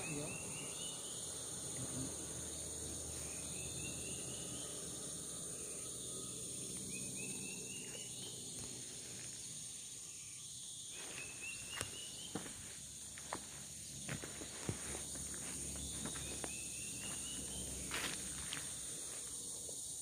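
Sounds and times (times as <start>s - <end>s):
high-pitched insect chorus: 0.0s - 20.0s
footsteps on leaf litter: 10.9s - 19.3s.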